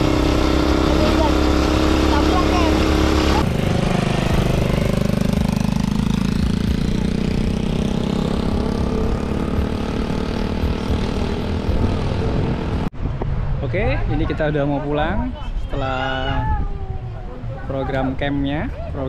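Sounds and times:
quad bike engine running: 0:00.0 - 0:12.9.

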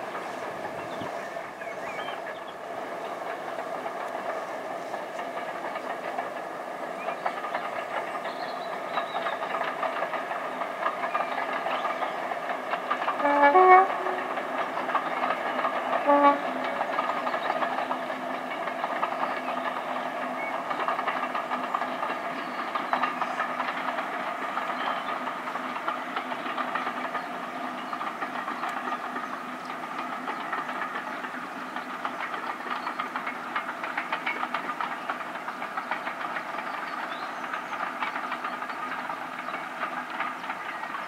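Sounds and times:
diesel locomotive engine running: 0:00.0 - 0:41.0
train wheels rattling: 0:00.0 - 0:41.0
train horn blasts: 0:13.1 - 0:14.5, 0:15.9 - 0:16.8.

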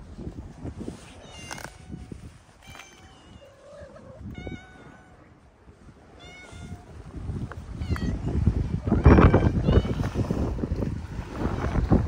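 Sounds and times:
cats meowing: 0:01.1 - 0:05.4, 0:06.1 - 0:07.0, 0:07.6 - 0:10.3.

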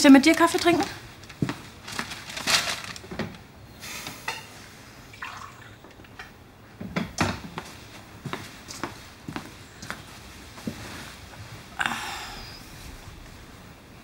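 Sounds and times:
coffee pouring into mug: 0:05.2 - 0:05.8.

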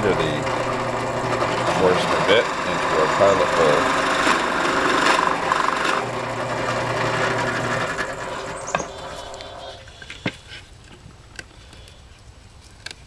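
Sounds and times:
drill press cutting wood: 0:00.0 - 0:10.3.

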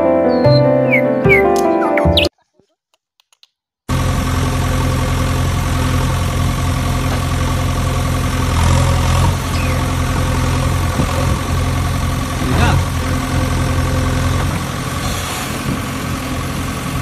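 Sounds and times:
machine engine hum: 0:03.9 - 0:17.0.

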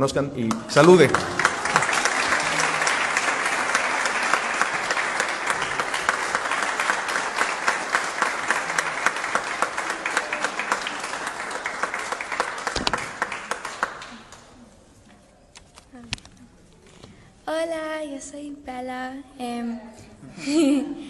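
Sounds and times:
audience applauding: 0:00.4 - 0:14.6.

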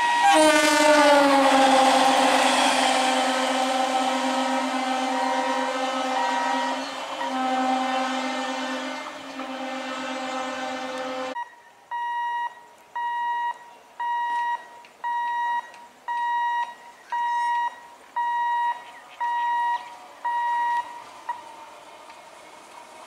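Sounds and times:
level crossing alarm beeping: 0:01.9 - 0:07.7, 0:11.2 - 0:21.4.

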